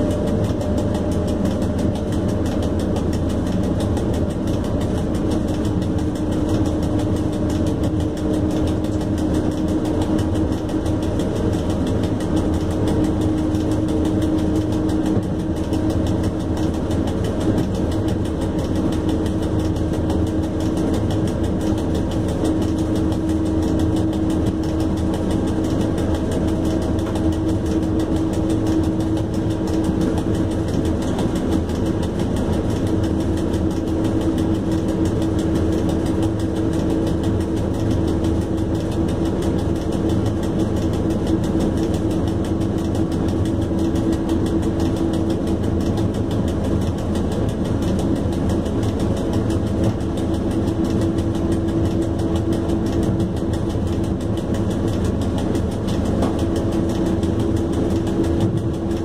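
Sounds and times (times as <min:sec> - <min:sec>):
locomotive hum: 0:00.0 - 0:59.0
wheels rumbling on rails: 0:00.0 - 0:59.0.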